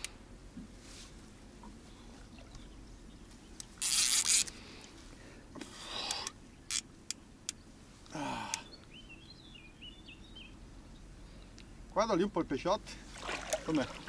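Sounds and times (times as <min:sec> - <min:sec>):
person grunting: 0:08.1 - 0:08.6
person breathing hard: 0:08.1 - 0:08.7.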